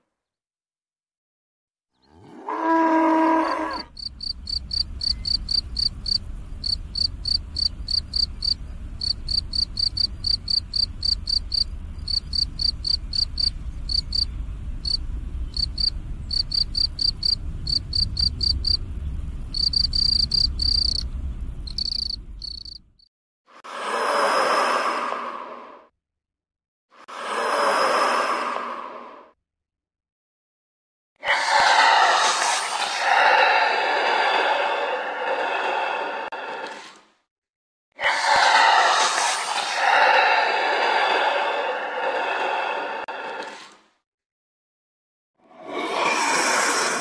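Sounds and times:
cricket chirping: 3.8 - 23.0
low rumble: 4.0 - 23.0.

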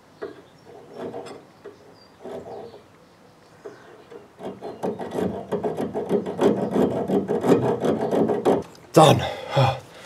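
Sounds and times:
hacksaw cutting metal: 4.4 - 8.6.

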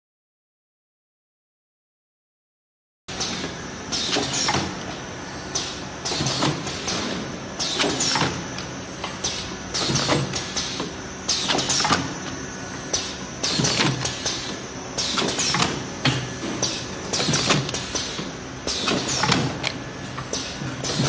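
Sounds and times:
mechanical clatter and hiss: 3.1 - 21.0.

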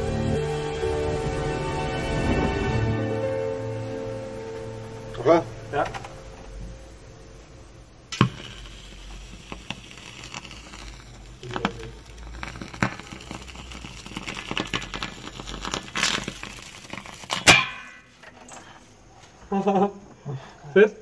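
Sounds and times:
metal sizzling in water: 8.1 - 18.6
sharp crackling pops: 8.1 - 18.7.

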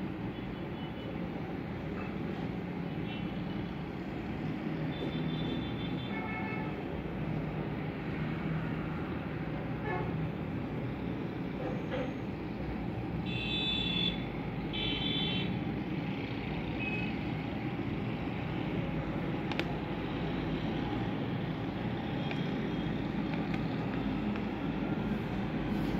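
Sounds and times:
road traffic noise: 0.0 - 25.9
click: 19.4 - 19.7, 22.2 - 22.5.

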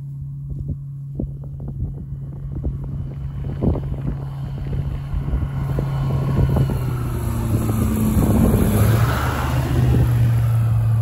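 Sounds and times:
propeller plane engine: 0.0 - 11.0
wind on microphone: 0.2 - 11.0.

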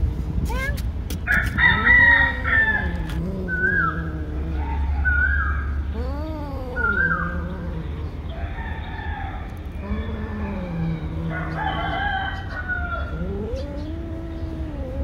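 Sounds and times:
steady low hum: 0.0 - 15.0
cat growling and yowling: 1.6 - 5.0.

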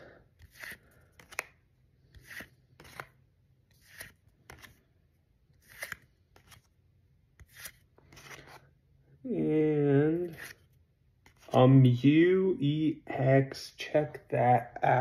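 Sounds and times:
cards swishing: 0.4 - 4.9, 5.6 - 6.8, 7.4 - 8.7, 10.2 - 10.6.

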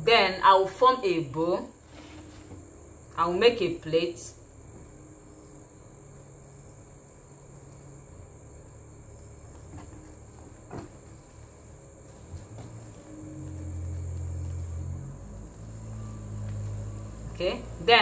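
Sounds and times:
low hum: 0.8 - 18.0
high-pitched whine: 0.9 - 18.0
fabric rustling: 1.8 - 2.7, 9.5 - 17.8.

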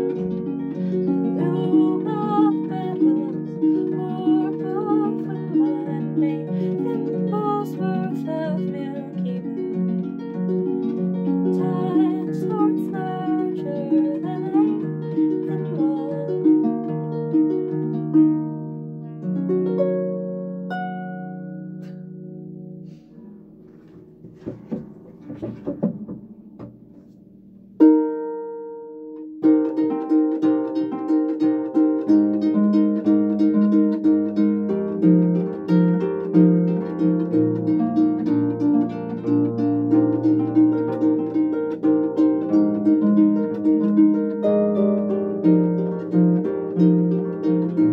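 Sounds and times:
faint knocks and rustles: 23.6 - 27.3.

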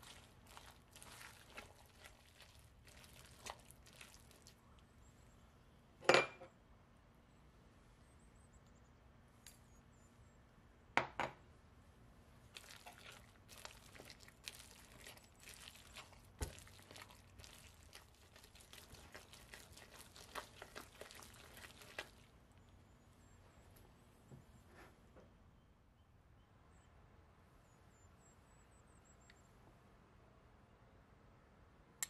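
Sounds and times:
spatula stirring sticky batter: 0.0 - 4.6, 12.5 - 22.4.

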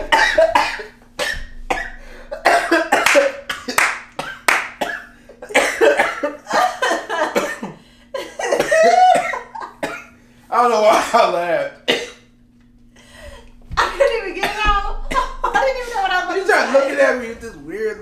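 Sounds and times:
person coughing and spluttering: 0.0 - 10.2, 11.9 - 12.3, 13.5 - 16.1
faint steady hum: 0.0 - 18.0.

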